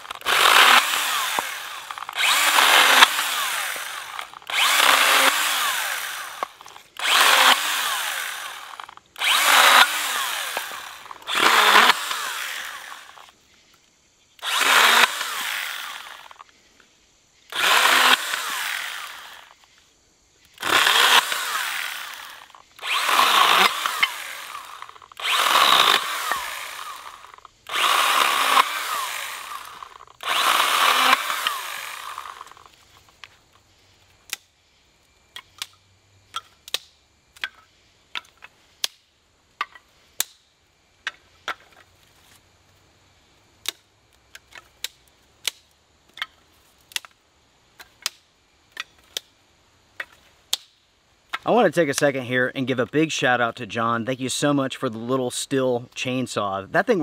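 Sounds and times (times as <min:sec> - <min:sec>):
chainsaw cutting sticks: 0:00.0 - 0:13.4, 0:14.4 - 0:16.6, 0:17.5 - 0:19.8, 0:20.4 - 0:34.5, 0:35.3 - 0:42.4, 0:43.6 - 0:49.4.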